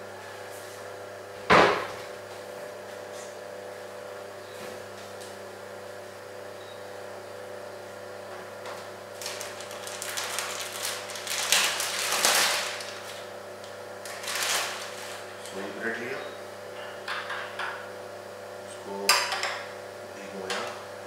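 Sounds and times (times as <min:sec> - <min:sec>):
plastic bag crinkling: 0:09.1 - 0:13.3, 0:14.0 - 0:15.5.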